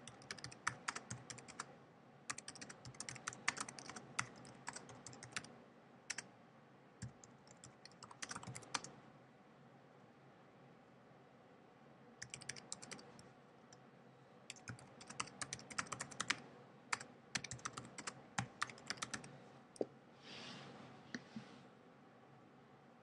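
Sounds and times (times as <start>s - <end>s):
typing on keyboard: 0.0s - 1.7s, 2.3s - 5.5s, 7.0s - 8.9s, 12.2s - 13.1s, 14.5s - 19.3s.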